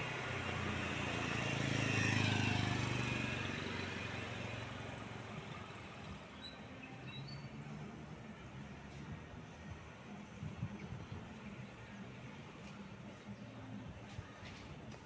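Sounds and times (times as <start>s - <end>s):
motor scooter passing: 0.0s - 5.8s.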